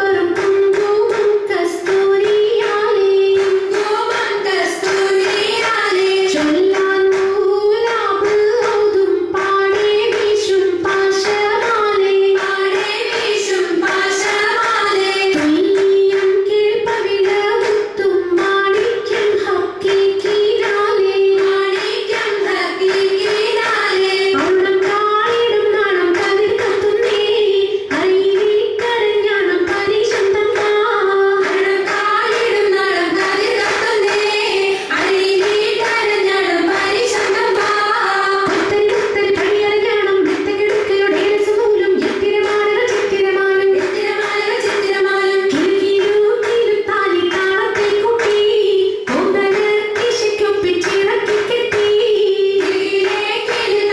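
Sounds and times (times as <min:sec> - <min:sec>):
rhythmic hand claps: 0:00.0 - 0:53.9
voices singing in unison: 0:31.4 - 0:40.4.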